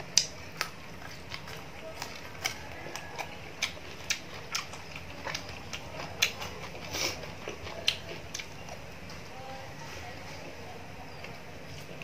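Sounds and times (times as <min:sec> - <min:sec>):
chewing crunchy food: 0:00.0 - 0:09.4.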